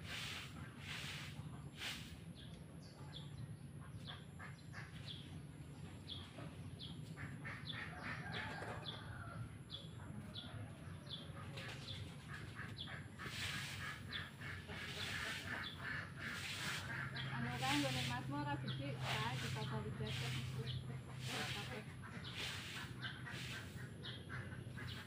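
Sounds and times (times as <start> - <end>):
rustling noise: 11.6 - 15.6, 16.2 - 18.3.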